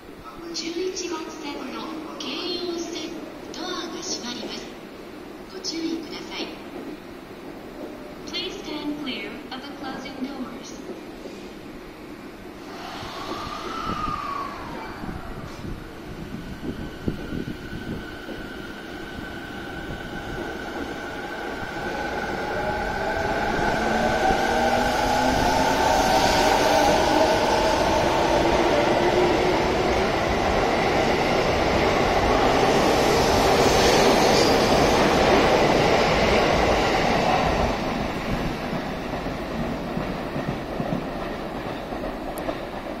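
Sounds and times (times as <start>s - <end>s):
train wheels rumbling on rails: 12.5s - 43.0s.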